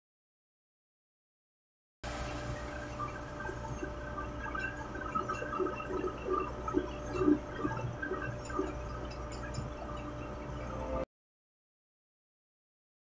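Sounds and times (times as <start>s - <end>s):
machinery hum: 2.0s - 11.0s.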